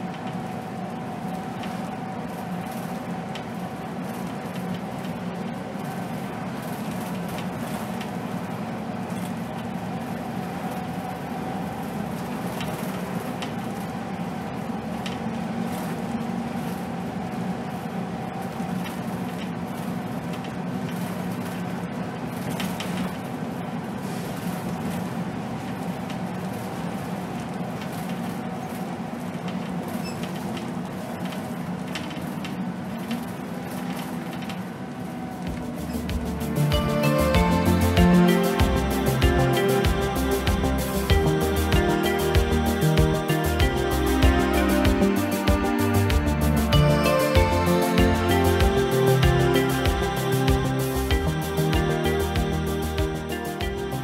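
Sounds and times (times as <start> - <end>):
road noise: 30.6 - 54.0
diesel bus engine humming: 34.3 - 54.0.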